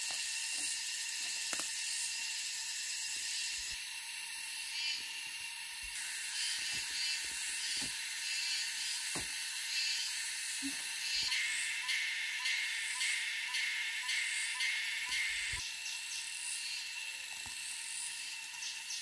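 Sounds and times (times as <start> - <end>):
insects hissing: 0.0 - 19.0
footsteps snapping and rustling: 6.6 - 8.0.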